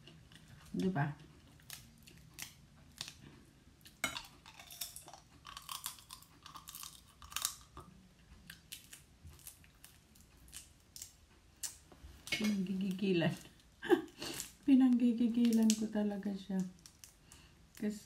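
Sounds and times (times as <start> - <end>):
chewing and sucking: 1.4 - 11.0
crab shell cracking: 1.5 - 13.0, 15.4 - 15.9, 16.5 - 17.9.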